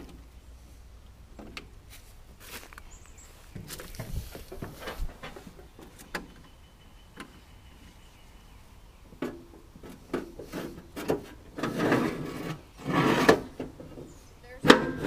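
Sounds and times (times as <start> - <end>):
knocks and clunks of handling: 1.3 - 1.7, 3.5 - 6.5, 9.1 - 15.0.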